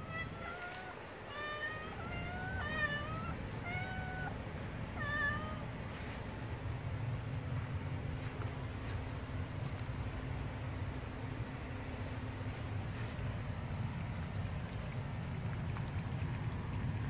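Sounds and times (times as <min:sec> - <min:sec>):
kittens meowing: 0:00.0 - 0:05.7.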